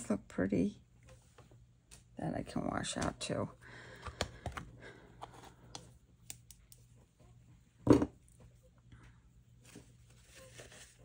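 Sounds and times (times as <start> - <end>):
faint steady hum: 0.0 - 11.0
soft rustling: 9.5 - 11.0.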